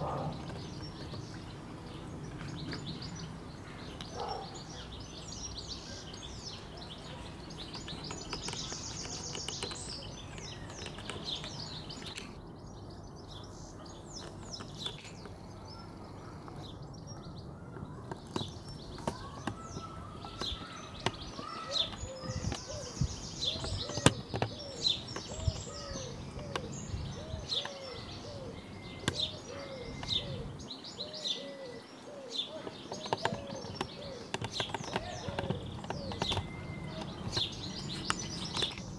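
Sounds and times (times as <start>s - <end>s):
birds chirping: 0.0s - 38.9s
low repeated bird call: 13.7s - 38.9s.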